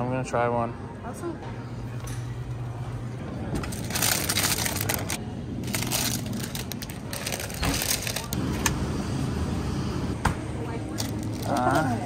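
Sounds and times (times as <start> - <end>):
plastic bags crinkling: 3.7 - 8.4.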